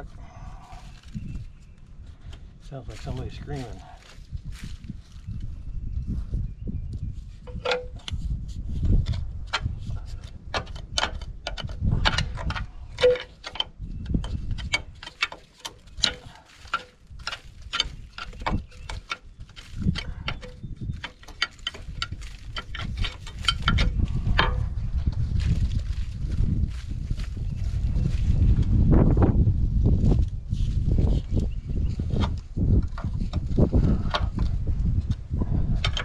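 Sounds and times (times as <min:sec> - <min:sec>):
hand tools clicking on metal: 0:09.0 - 0:24.6
low rumble: 0:19.5 - 0:36.0.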